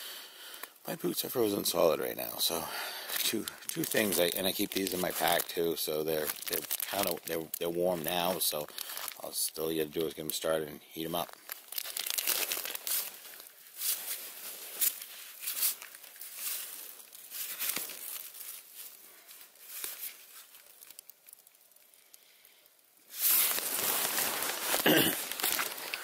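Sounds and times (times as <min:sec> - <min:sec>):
wrappers crinkling: 0:00.5 - 0:26.0
hammock fabric rustling: 0:11.4 - 0:21.8, 0:23.1 - 0:26.0.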